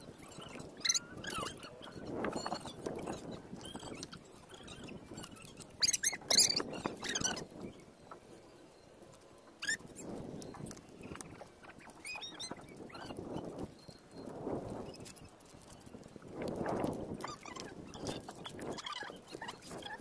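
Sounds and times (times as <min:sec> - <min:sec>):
beach stones clacking and scraping: 0:00.0 - 0:20.0.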